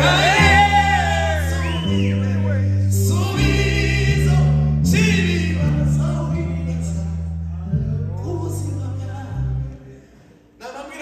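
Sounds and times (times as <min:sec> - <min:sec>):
low held bass notes: 0:00.0 - 0:10.0
man singing gospel song: 0:00.0 - 0:11.0.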